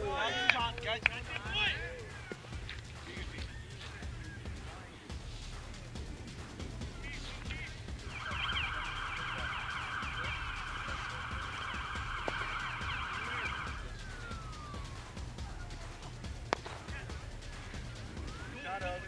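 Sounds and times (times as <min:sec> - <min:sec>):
warbling emergency siren: 0:08.0 - 0:17.2, 0:17.8 - 0:19.0.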